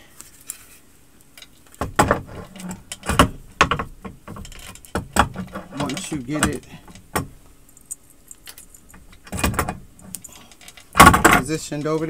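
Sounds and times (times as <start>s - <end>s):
metal platen knocking and clanking: 1.8s - 7.5s, 8.8s - 12.0s.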